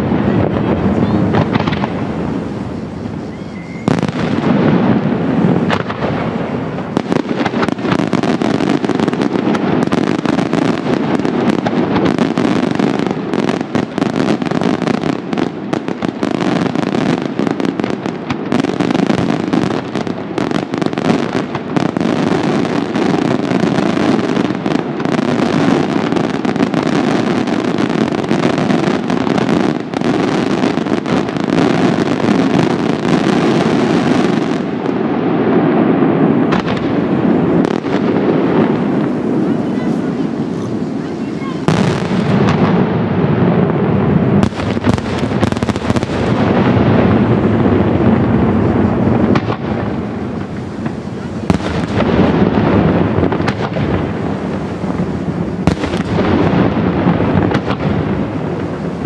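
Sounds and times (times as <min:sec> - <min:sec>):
fireworks crackling barrage: 0:00.0 - 0:59.0.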